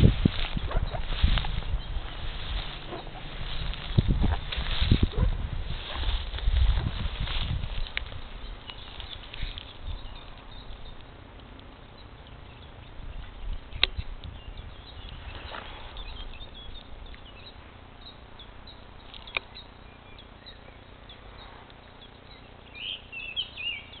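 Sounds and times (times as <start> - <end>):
small birds chirping: 0.0 - 24.0
sharp clicks: 7.8 - 12.5, 13.4 - 14.4, 19.1 - 19.6.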